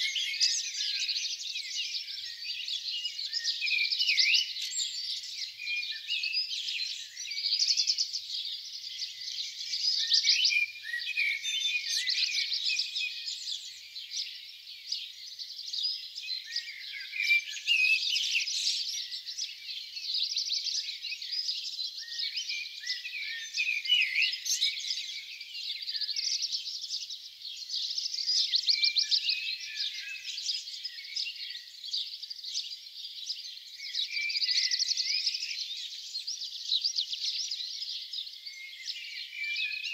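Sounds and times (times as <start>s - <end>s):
songbirds singing: 0.0s - 39.9s.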